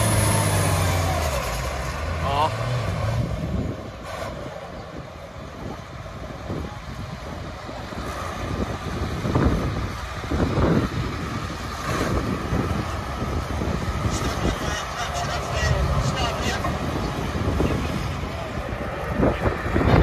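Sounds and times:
wind buffeting microphone: 3.0 - 20.0.

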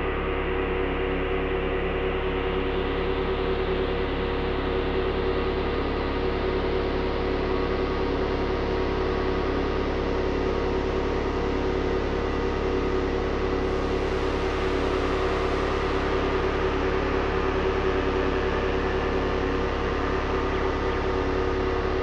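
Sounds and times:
analog synthesizer drone: 0.0 - 22.0.

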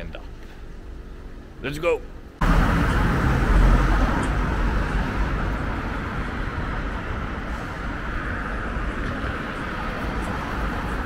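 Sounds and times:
cars driving past: 2.4 - 11.0.

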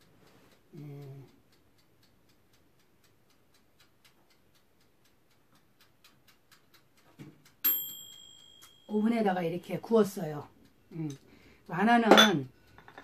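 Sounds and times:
dial timer ticking fast: 0.0 - 12.8
timer bell ding: 7.6 - 9.3.

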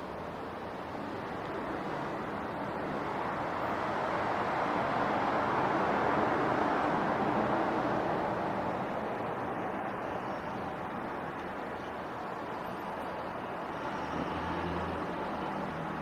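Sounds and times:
road traffic: 0.0 - 16.0
vehicle passing: 13.7 - 16.0.

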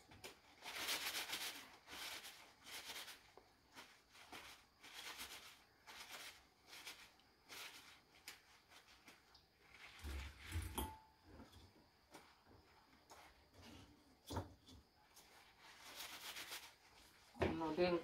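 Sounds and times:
kitchen paper rustling: 0.0 - 10.8, 15.0 - 18.0.

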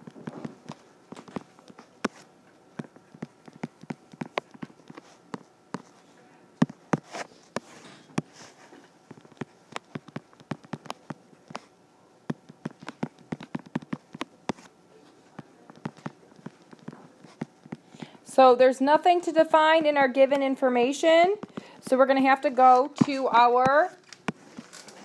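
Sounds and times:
stylus tapping on tablet screen: 2.8 - 5.9, 9.1 - 11.7, 12.3 - 14.7, 15.4 - 18.2.

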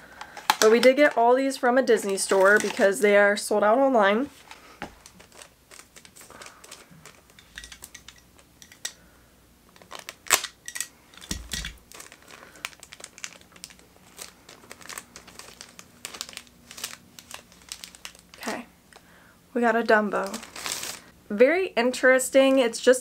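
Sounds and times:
packaging crinkling: 1.9 - 3.0, 4.3 - 9.0, 9.7 - 18.6, 20.1 - 21.1.

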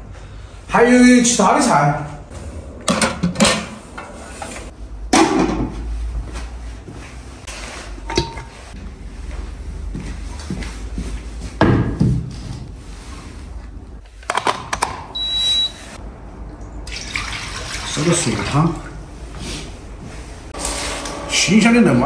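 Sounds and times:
water poured into wok: 16.9 - 18.0.

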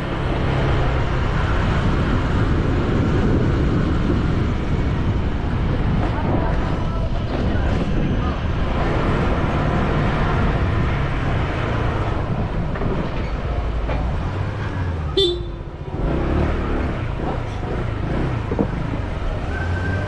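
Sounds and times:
wind on microphone: 0.4 - 14.1, 17.1 - 19.4
short horn toot: 15.2 - 15.7.

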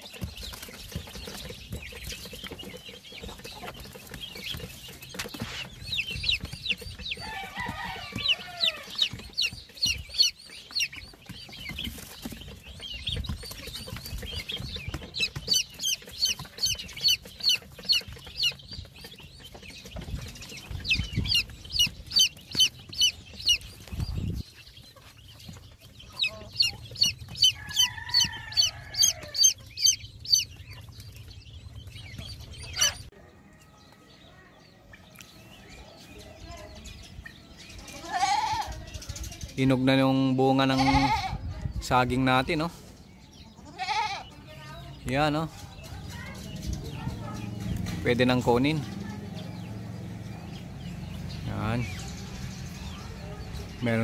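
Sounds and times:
chicks peeping: 0.0 - 54.0
grown chicken calling: 2.0 - 42.7.

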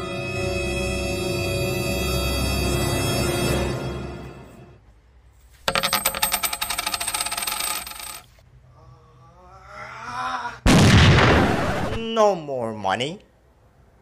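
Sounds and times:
coins jingling: 5.7 - 8.4.

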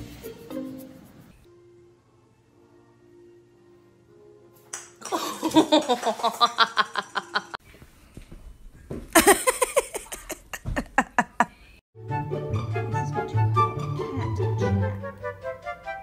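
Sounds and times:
soft background music: 0.0 - 5.7, 12.0 - 16.0.

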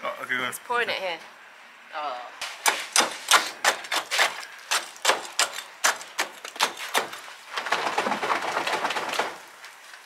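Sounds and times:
rough continuous scraping: 2.4 - 10.0.

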